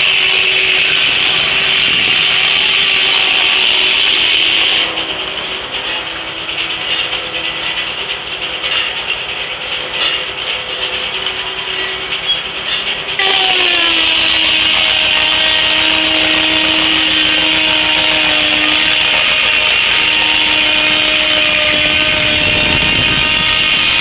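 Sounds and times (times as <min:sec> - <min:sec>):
circular saw sawing log: 0:13.2 - 0:24.0.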